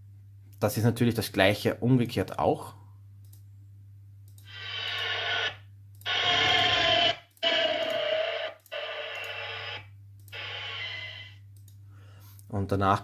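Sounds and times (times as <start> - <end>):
electric train motor whine: 4.5 - 11.4.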